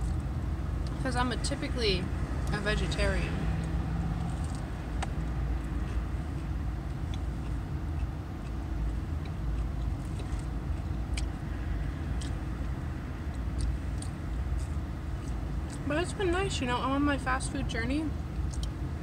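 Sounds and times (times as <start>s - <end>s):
low rumble of running car: 0.0s - 19.0s
person chewing crunchy food: 3.6s - 15.8s, 18.3s - 18.8s.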